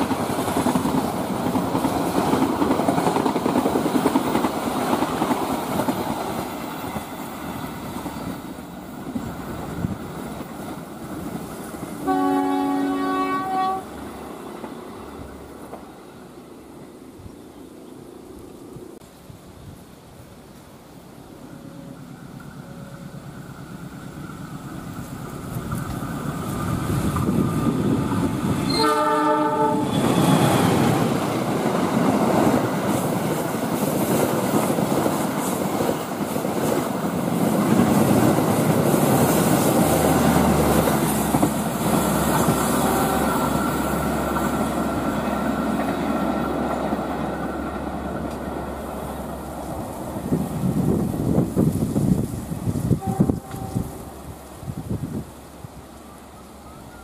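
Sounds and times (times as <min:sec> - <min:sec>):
train wheel and rail noise: 0:00.0 - 0:57.0
train horn blast: 0:12.0 - 0:14.0, 0:28.7 - 0:30.8, 0:42.6 - 0:44.0, 0:52.9 - 0:54.2.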